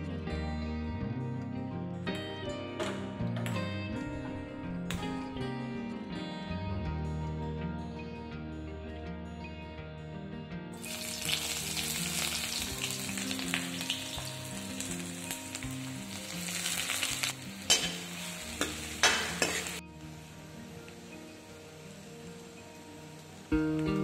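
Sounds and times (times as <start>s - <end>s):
guitar music: 0.0s - 24.0s
onions sizzling in hot oil: 10.8s - 24.0s
metal ladle scraping a pan: 16.5s - 19.8s.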